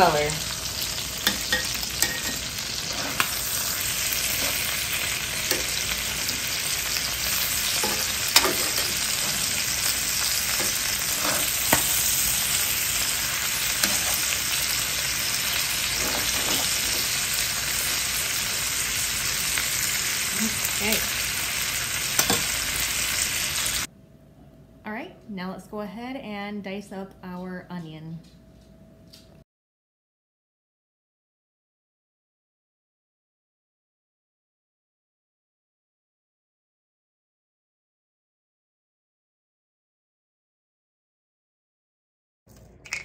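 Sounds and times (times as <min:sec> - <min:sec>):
chicken sizzling in oil: 0:00.0 - 0:23.9
metal tongs clicking on pan: 0:01.2 - 0:02.4, 0:07.8 - 0:09.0, 0:22.2 - 0:22.5.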